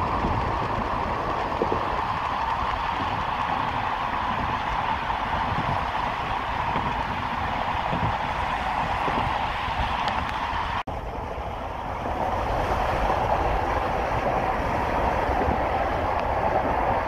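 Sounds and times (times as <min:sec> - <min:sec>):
car road and wind noise: 0:00.0 - 0:17.0.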